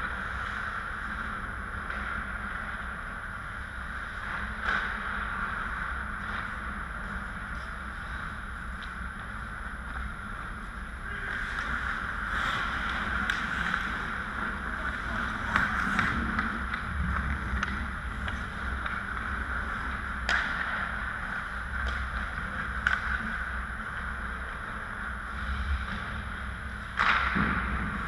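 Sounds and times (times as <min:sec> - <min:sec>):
hockey sticks and puck clacking: 0:00.0 - 0:24.9, 0:26.8 - 0:28.0
low hum: 0:00.0 - 0:28.0
skates scraping on ice: 0:04.0 - 0:26.0.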